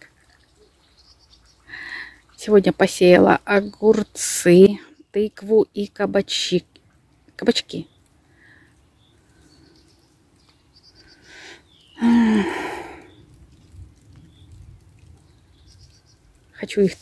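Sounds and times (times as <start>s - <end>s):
faint bird chirps: 7.8s - 14.6s, 15.2s - 16.3s
woman sighing: 11.3s - 13.1s.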